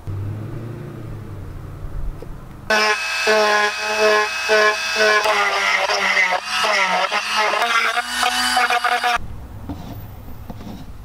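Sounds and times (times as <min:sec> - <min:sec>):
low rumble: 0:00.0 - 0:02.7
power drill drilling plastic: 0:02.7 - 0:09.2.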